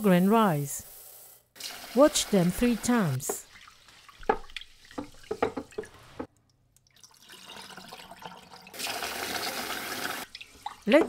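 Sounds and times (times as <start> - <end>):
water pouring: 1.6 - 11.0
water sloshing in bowl: 3.4 - 8.2.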